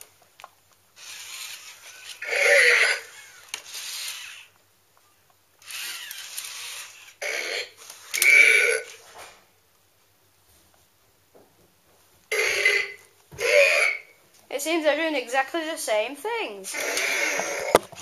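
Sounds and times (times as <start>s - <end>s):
toy robot voice effects: 1.0s - 4.5s, 5.6s - 9.0s, 12.3s - 14.1s, 16.7s - 17.8s.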